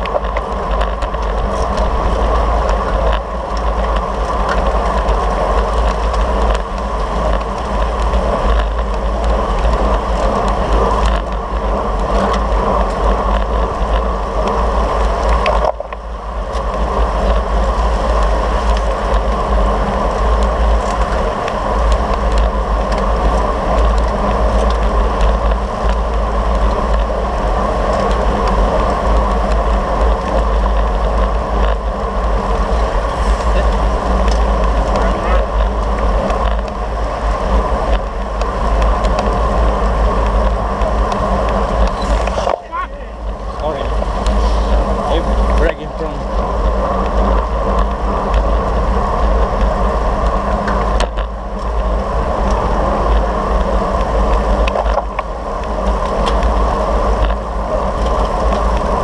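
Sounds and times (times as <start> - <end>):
wind noise on microphone: 0.0 - 59.0.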